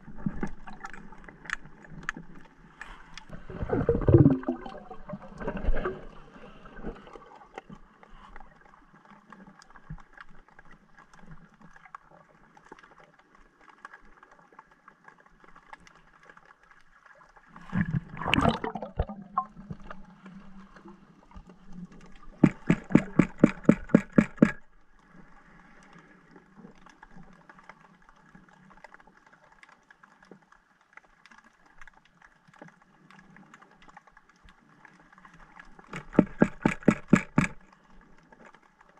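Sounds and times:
low steady underwater hum: 0.0 - 38.9
water swish: 0.0 - 38.9
rapid even clicks: 22.4 - 24.6, 35.9 - 37.6.

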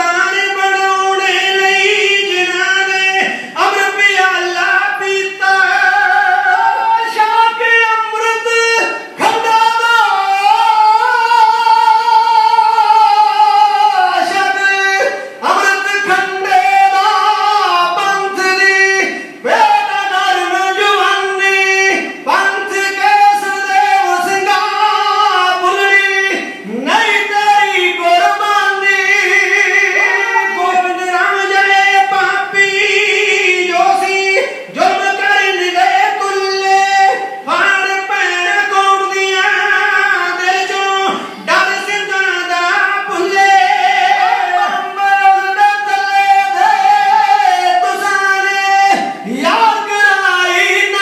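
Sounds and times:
man singing high held notes: 0.0 - 51.0.

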